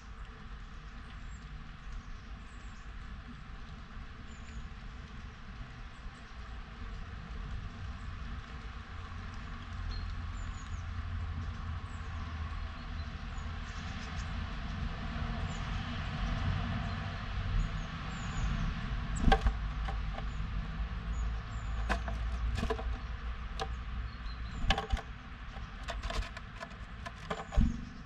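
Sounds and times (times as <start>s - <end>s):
bird pecking on wood: 19.2s - 20.4s, 21.6s - 23.8s, 24.5s - 28.0s.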